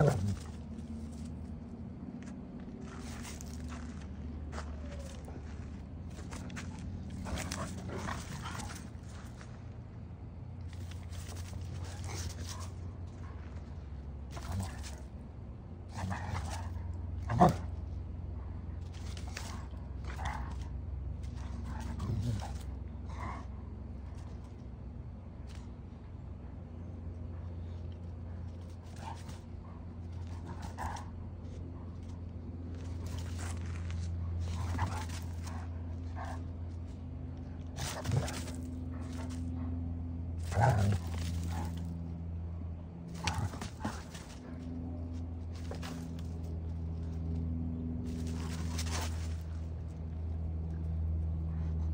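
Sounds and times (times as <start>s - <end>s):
low hum: 0.0s - 51.9s
dogs sniffing: 6.2s - 9.5s, 32.8s - 39.8s.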